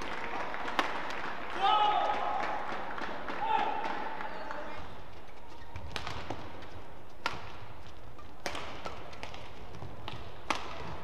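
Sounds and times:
rackets hitting shuttlecock: 0:00.0 - 0:04.7, 0:05.6 - 0:11.0.

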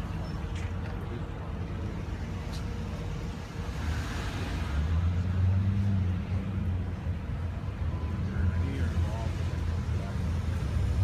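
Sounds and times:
vehicle engine rumbling: 0:00.0 - 0:11.0.

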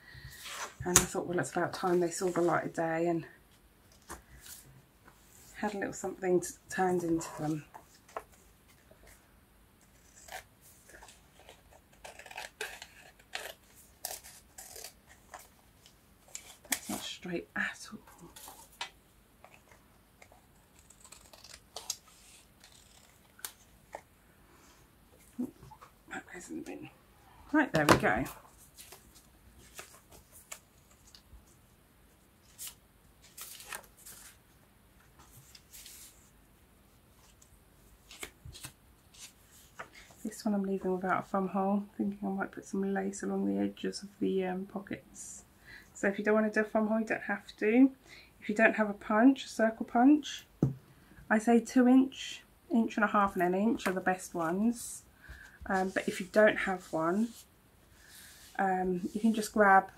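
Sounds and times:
scissors cutting paper: 0:11.4 - 0:15.0, 0:20.6 - 0:23.6
paper sheets rustling: 0:27.8 - 0:31.2, 0:38.0 - 0:40.2.

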